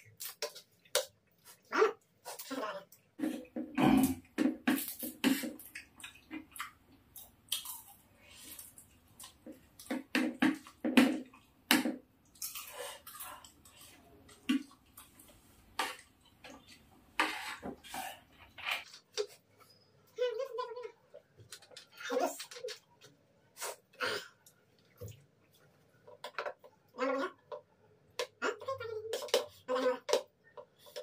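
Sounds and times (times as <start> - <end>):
wet chewing and smacking: 4.7 - 11.5.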